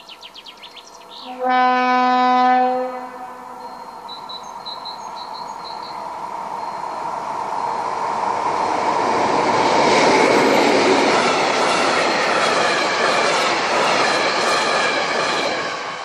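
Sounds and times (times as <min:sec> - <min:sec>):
diesel locomotive passing: 0:00.0 - 0:16.0
train wagons rolling on rails: 0:03.4 - 0:16.0.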